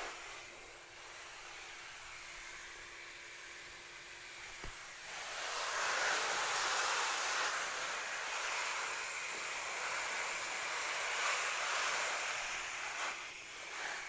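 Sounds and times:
water spray hissing: 0.0s - 2.8s, 4.4s - 14.0s.

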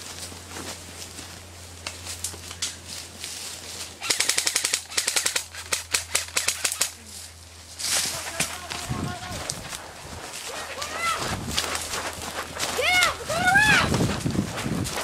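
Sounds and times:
footsteps through leaf litter: 0.0s - 4.0s, 7.0s - 15.0s
airsoft gunfire: 4.0s - 6.9s.

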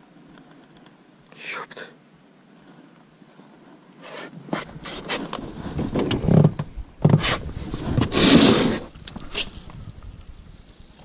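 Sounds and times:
scraping in plastic box: 4.5s - 9.0s.

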